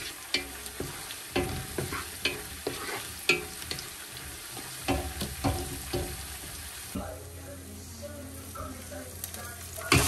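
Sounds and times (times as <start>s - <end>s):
spoon scraping a pot: 0.0s - 5.6s
onions frying with a sizzle: 0.0s - 10.0s.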